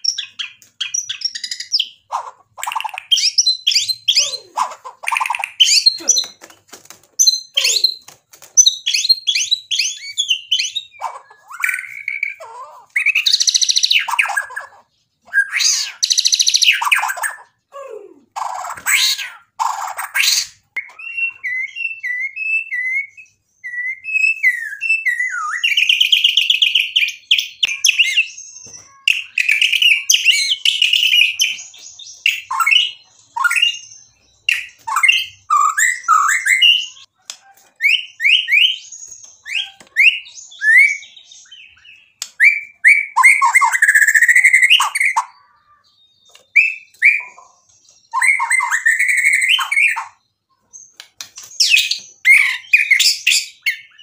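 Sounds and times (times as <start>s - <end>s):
songbird singing varied song: 37.8s - 54.0s.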